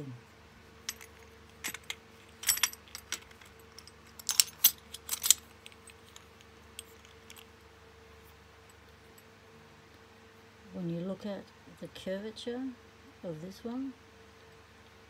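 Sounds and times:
padlock keys jangling: 0:00.9 - 0:07.5.

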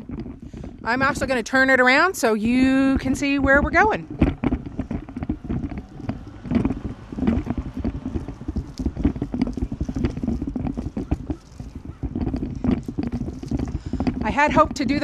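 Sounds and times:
wind rumbling on microphone: 0:00.0 - 0:15.0
handling knocks and scrapes: 0:02.9 - 0:15.0.

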